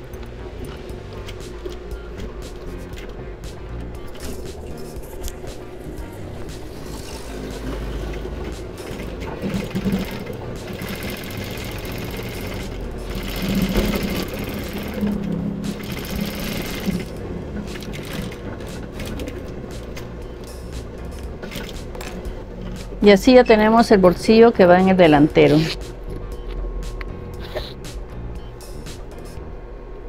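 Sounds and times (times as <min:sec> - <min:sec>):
industrial sewing machine stitching: 0:06.8 - 0:20.0, 0:21.4 - 0:21.9.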